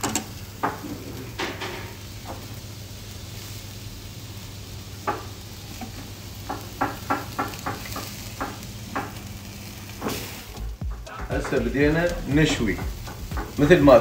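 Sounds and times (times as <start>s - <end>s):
meat sizzling on a grill: 0.0s - 14.0s.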